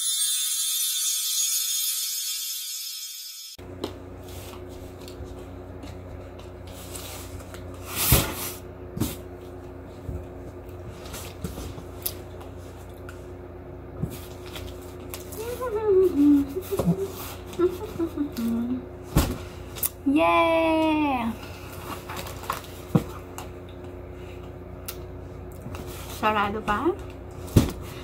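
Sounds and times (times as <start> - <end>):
low room hum: 3.6 - 28.0.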